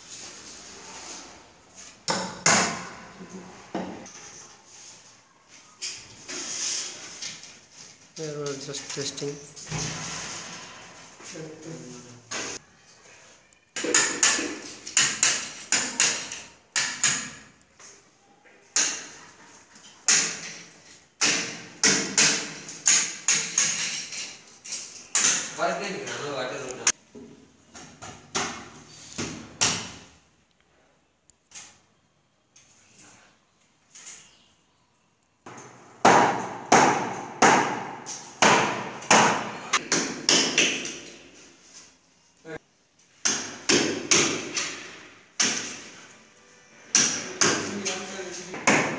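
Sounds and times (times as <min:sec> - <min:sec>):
hammer striking wood: 0:02.1 - 0:03.0, 0:21.2 - 0:23.8, 0:35.5 - 0:41.1, 0:43.2 - 0:45.8.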